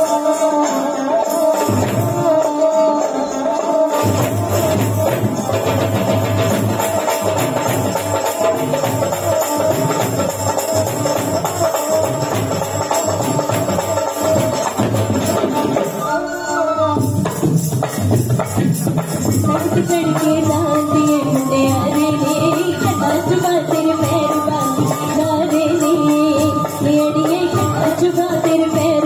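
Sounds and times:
jingling hand percussion: 0:00.0 - 0:29.0
dhol drum beat: 0:01.4 - 0:02.7, 0:03.8 - 0:16.3, 0:16.9 - 0:29.0
person singing: 0:19.3 - 0:29.0.

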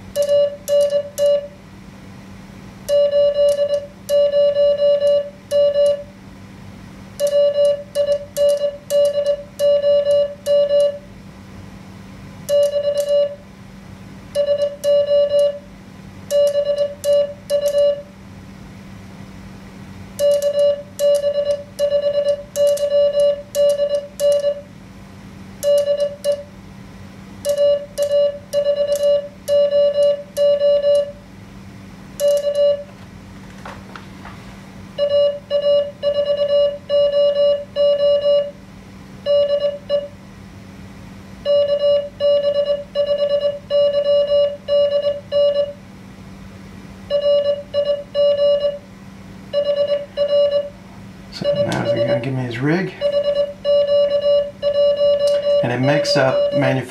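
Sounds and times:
morse code tone: 0:00.1 - 0:01.6, 0:02.9 - 0:06.1, 0:07.2 - 0:11.0, 0:12.5 - 0:13.4, 0:14.4 - 0:15.7, 0:16.3 - 0:18.1, 0:20.2 - 0:24.7, 0:25.6 - 0:26.5, 0:27.4 - 0:31.2, 0:32.2 - 0:32.9, 0:35.0 - 0:38.6, 0:39.3 - 0:40.1, 0:41.4 - 0:45.8, 0:47.1 - 0:48.8, 0:49.6 - 0:50.8, 0:51.4 - 0:56.9.

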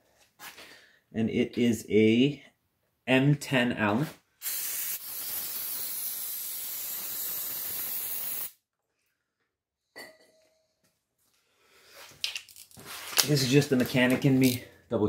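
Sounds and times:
aerosol can spraying: 0:04.4 - 0:08.6.

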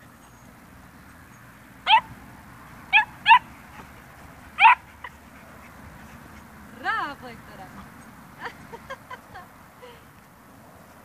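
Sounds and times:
dog yipping: 0:01.9 - 0:02.1, 0:02.9 - 0:03.9, 0:04.6 - 0:05.2.

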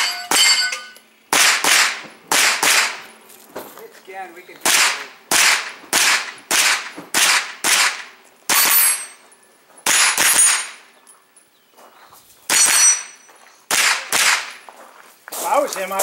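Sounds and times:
steel target ringing: 0:00.0 - 0:01.0, 0:08.5 - 0:09.2, 0:09.9 - 0:10.9, 0:12.5 - 0:13.4
carbine gunshots: 0:00.0 - 0:03.2, 0:04.6 - 0:09.2, 0:09.8 - 0:10.8, 0:12.5 - 0:14.6.

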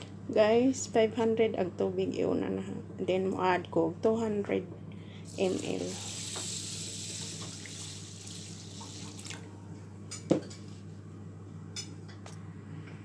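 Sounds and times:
low steady hum: 0:00.0 - 0:13.0
water pouring into a pan: 0:05.3 - 0:09.4.

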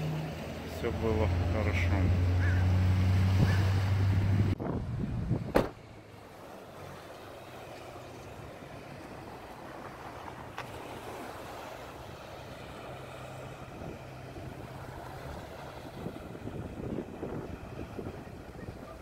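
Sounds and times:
boat engine drone: 0:00.0 - 0:19.0
wind buffeting microphone: 0:03.1 - 0:06.0, 0:13.6 - 0:19.0.

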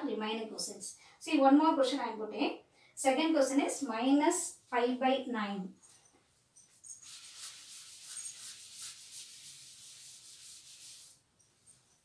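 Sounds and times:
duster rubbing chalkboard: 0:06.9 - 0:11.2.

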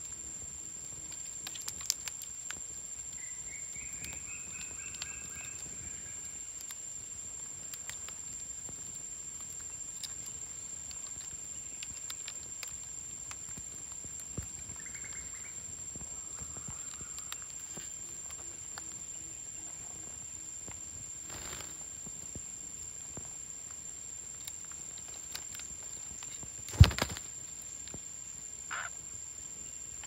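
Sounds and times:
beaks and feet tapping branches: 0:00.9 - 0:19.0, 0:23.1 - 0:28.0
parakeets chirping: 0:28.7 - 0:28.9.

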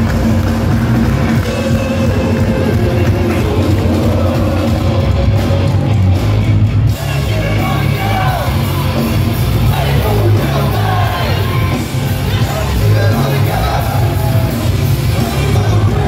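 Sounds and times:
loud punk band playing: 0:00.0 - 0:16.0
shouted vocals: 0:06.9 - 0:16.0.

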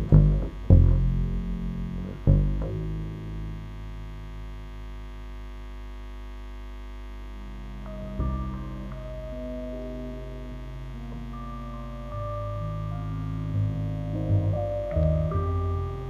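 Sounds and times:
double bass plucked: 0:00.0 - 0:04.3, 0:07.5 - 0:16.0
low held drone: 0:07.4 - 0:16.0.

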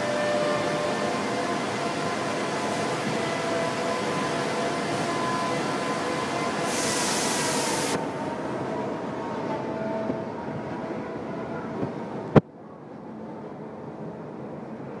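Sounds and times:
train rumbling past: 0:00.0 - 0:15.0
loud hiss: 0:06.6 - 0:08.0.

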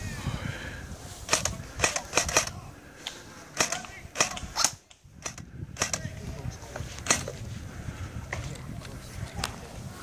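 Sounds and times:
airsoft rifle shots: 0:01.3 - 0:02.6, 0:03.6 - 0:06.1.

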